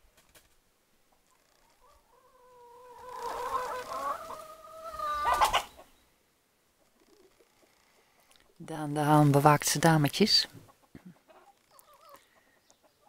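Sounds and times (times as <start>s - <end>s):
rooster crowing: 1.9s - 5.6s.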